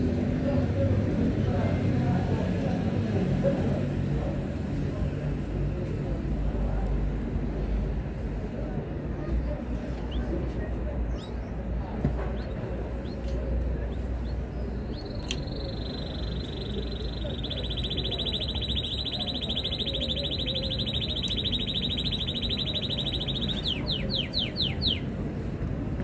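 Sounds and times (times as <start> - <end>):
canary singing trills: 13.9 - 25.1.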